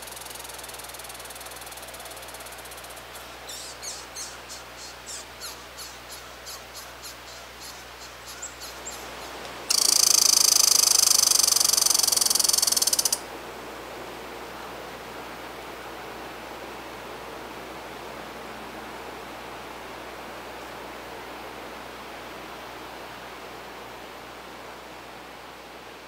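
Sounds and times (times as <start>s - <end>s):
squirrel chirping: 0.0s - 13.2s
squirrel rapid rattle: 9.7s - 13.2s.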